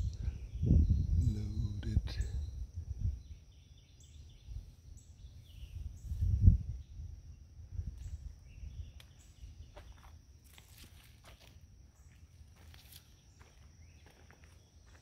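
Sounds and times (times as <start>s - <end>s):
wind or handling on microphone: 0.0s - 3.5s, 4.2s - 9.7s
high-pitched insect trill: 0.0s - 15.0s
footsteps through plants: 9.0s - 15.0s
rustling plants: 9.0s - 15.0s.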